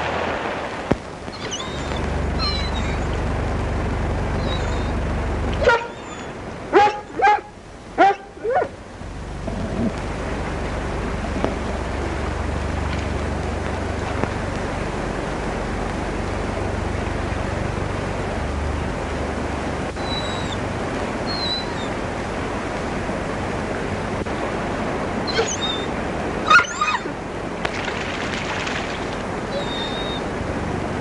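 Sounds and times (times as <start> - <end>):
dog howling: 1.3 - 3.2, 4.4 - 5.0, 5.6 - 8.8, 25.2 - 27.2, 29.5 - 30.3.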